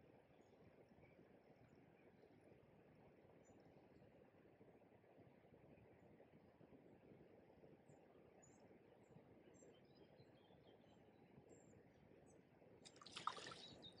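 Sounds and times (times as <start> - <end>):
river water murmuring: 12.9 - 13.8
splash on water: 12.9 - 13.8
small birds chirping: 12.9 - 14.0.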